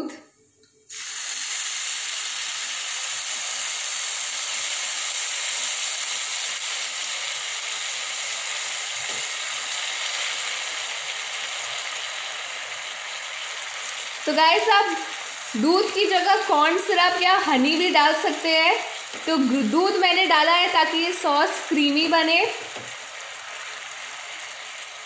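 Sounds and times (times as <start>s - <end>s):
milk sizzling in a hot pan: 0.9s - 25.0s.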